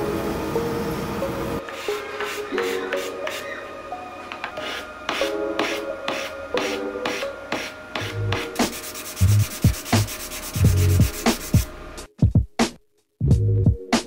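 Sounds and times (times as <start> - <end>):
hand-sanding rasping strokes: 1.7 - 3.5, 4.6 - 11.7.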